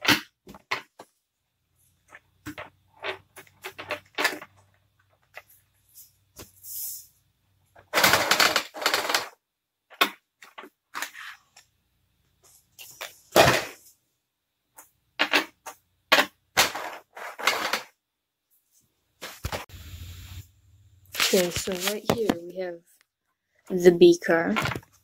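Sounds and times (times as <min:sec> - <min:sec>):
plastic packaging crackling: 0:21.1 - 0:22.2.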